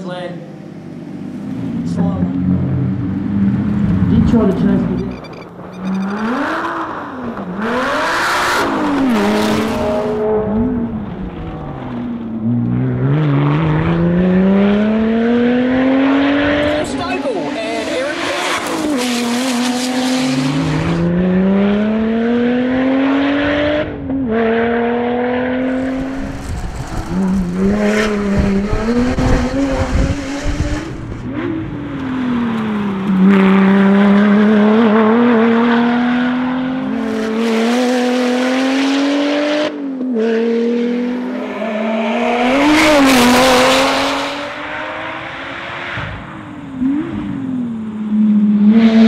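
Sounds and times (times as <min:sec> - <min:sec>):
rally car engine revving past: 0:06.0 - 0:49.0.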